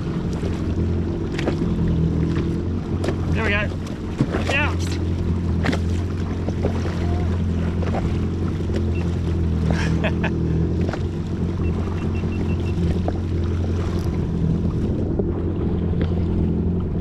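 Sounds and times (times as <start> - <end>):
jet ski engine idling: 0.0 - 17.0
water lapping at hull: 0.0 - 17.0
wind: 0.0 - 17.0
faint high beeps: 11.6 - 12.8.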